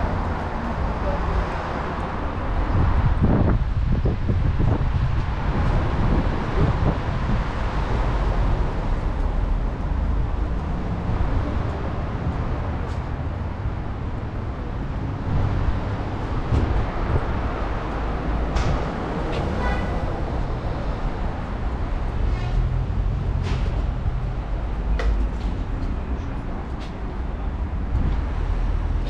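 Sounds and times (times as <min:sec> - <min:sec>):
rumble of passing cars: 0:00.0 - 0:29.0.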